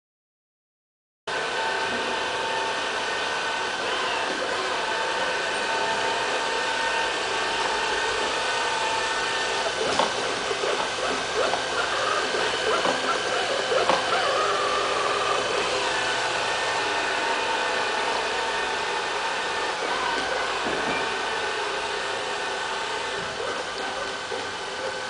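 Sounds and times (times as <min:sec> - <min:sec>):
robot vacuum cleaner whine: 0:01.3 - 0:25.0.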